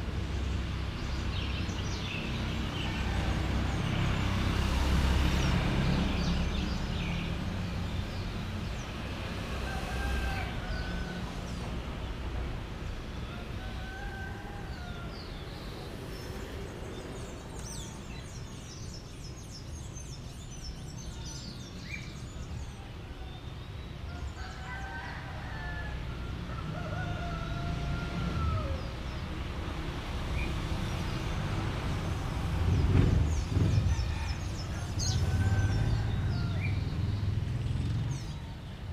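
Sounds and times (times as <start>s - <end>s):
low traffic rumble: 0.0s - 38.9s
roosters crowing: 9.4s - 12.0s, 13.1s - 15.8s, 24.0s - 29.1s, 33.2s - 37.1s
small birds chirping: 14.7s - 24.7s.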